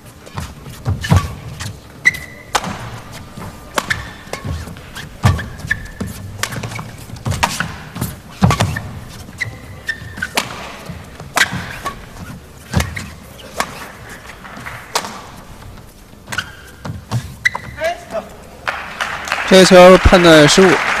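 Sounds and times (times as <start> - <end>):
racket striking shuttlecock: 2.0 - 15.5.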